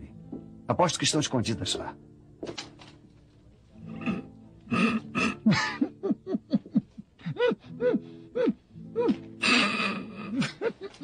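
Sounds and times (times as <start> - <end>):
man laughing: 5.4 - 7.6, 10.2 - 11.0.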